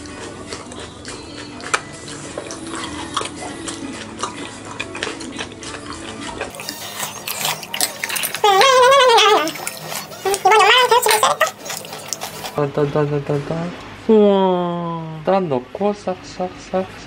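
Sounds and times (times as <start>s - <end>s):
utensils clinking on stone bowls: 5.9s - 12.6s
wavering melodic voice: 6.5s - 12.2s.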